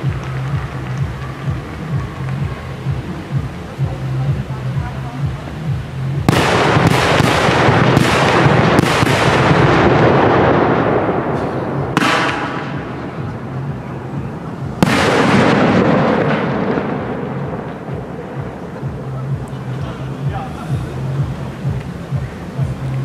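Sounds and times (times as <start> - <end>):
continuous rumble: 0.0 - 23.0
fireworks bangs: 6.2 - 20.4.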